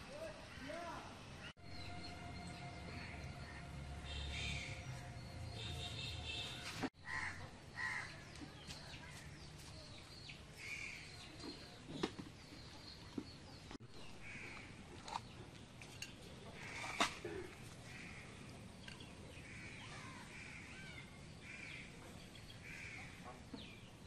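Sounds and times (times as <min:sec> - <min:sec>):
crows cawing: 0:07.0 - 0:08.2, 0:14.2 - 0:14.7, 0:17.8 - 0:18.4, 0:19.4 - 0:21.8, 0:22.6 - 0:23.2.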